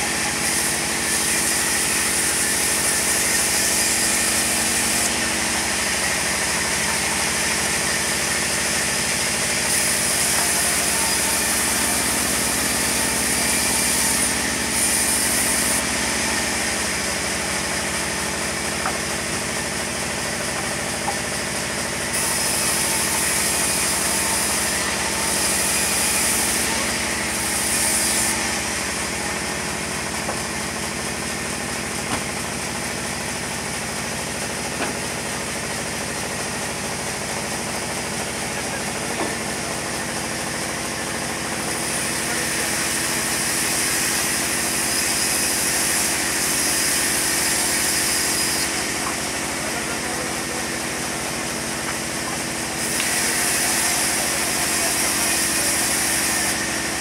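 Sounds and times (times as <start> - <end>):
band sawmill drone: 0.0 - 57.0
high hiss of blade cutting: 9.7 - 16.9, 22.1 - 29.3, 42.6 - 49.3, 52.7 - 57.0.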